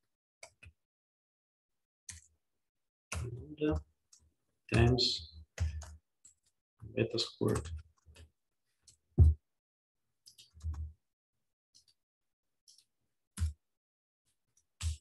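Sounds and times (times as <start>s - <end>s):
keyboard keystrokes and clicks: 0.4s - 0.8s, 2.1s - 2.4s, 7.3s - 9.4s, 10.2s - 11.0s, 12.7s - 13.6s, 14.5s - 15.0s.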